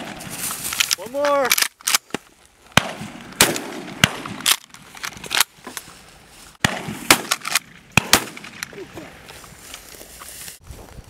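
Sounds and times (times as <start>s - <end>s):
shotgun shots: 0.0s - 0.4s, 2.7s - 5.4s, 6.6s - 8.7s.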